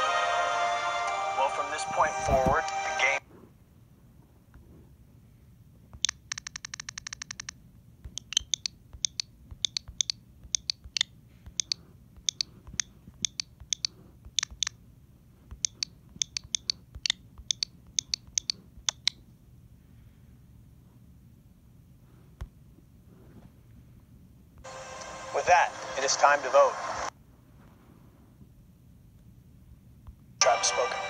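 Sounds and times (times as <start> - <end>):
fast run of ticks: 6.0 - 14.7
sharp irregular clicks: 6.0 - 14.8, 15.5 - 19.2.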